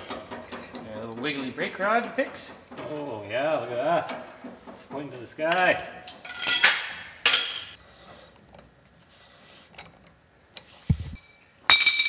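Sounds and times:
socket wrench clanking on metal: 0:00.0 - 0:01.6, 0:05.5 - 0:07.8
dull thump: 0:10.9 - 0:11.2.

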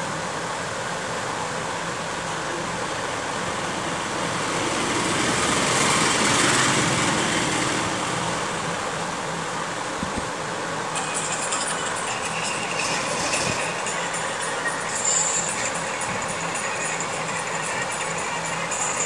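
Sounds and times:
rushing noise from phone speaker: 0:11.0 - 0:19.0.

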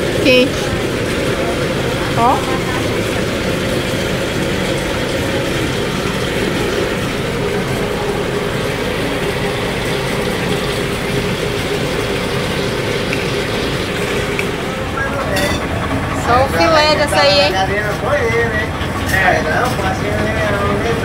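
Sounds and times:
pulping machine humming: 0:00.0 - 0:21.0.

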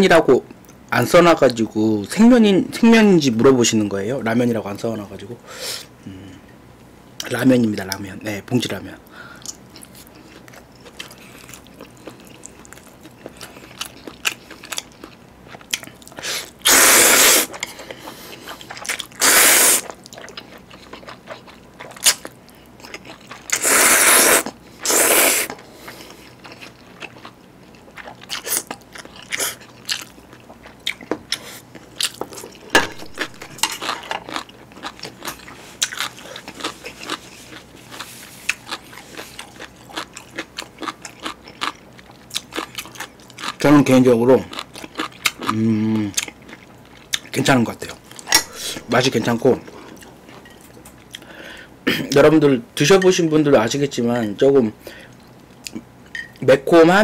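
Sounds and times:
wet chewing: 0:09.4 - 0:43.6, 0:44.4 - 0:47.4
loud noodle slurps: 0:16.2 - 0:17.6, 0:19.2 - 0:19.9, 0:23.5 - 0:25.6.

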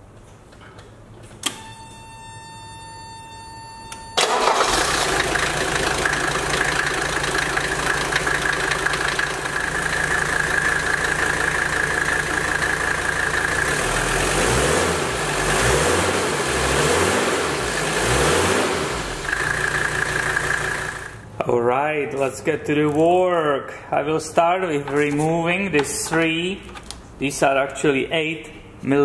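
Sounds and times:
high engine whine: 0:04.2 - 0:21.5
diesel engine running and revving: 0:04.4 - 0:21.2.

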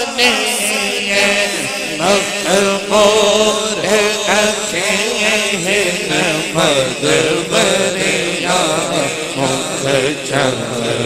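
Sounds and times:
man singing into a microphone: 0:00.0 - 0:11.0.

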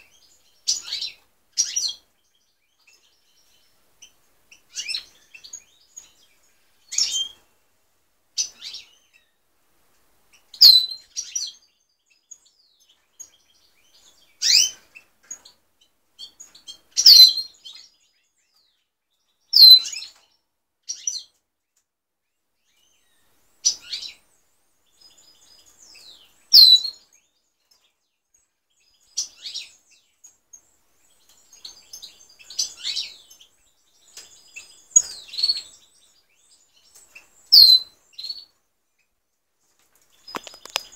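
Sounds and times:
goldfinches chirping: 0:28.7 - 0:39.2, 0:40.1 - 0:40.9.

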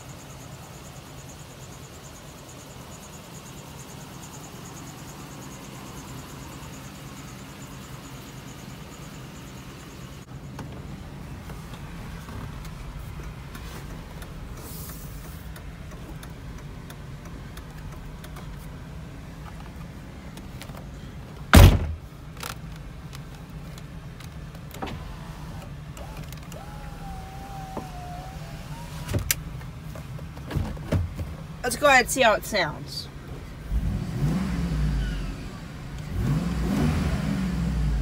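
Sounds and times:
heavy thump: 0:21.5 - 0:22.0
power window motor whine: 0:24.8 - 0:29.4.

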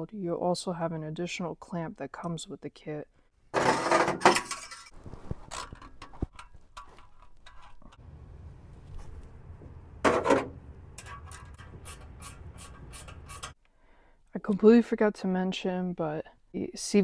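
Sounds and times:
low steady hum: 0:07.5 - 0:13.5
metal scraping: 0:10.0 - 0:13.6.

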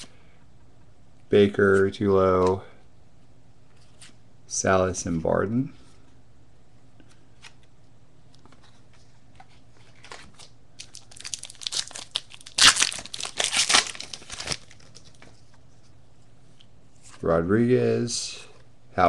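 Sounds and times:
wrapper tearing and crinkling: 0:10.0 - 0:15.2.

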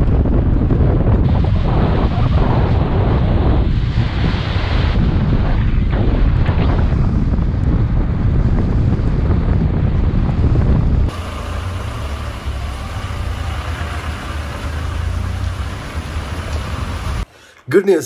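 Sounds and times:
wind buffeting microphone: 0:00.0 - 0:13.6
vehicle road noise: 0:07.9 - 0:17.3.

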